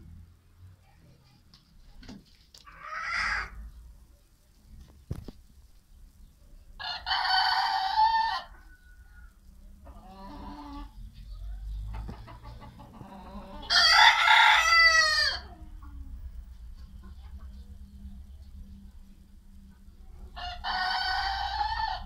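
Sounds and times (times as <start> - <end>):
roosters crowing: 2.6 - 3.7, 6.8 - 11.0, 11.7 - 15.6, 20.3 - 22.0.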